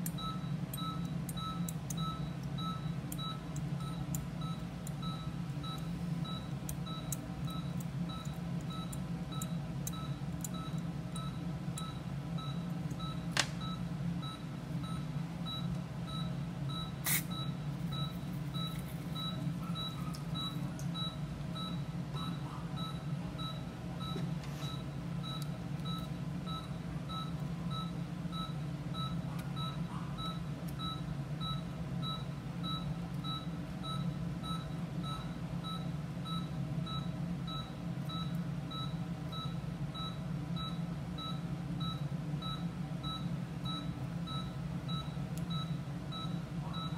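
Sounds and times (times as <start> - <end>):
low machine hum: 0.0 - 46.9
two-tone monitor beeps: 0.2 - 46.9.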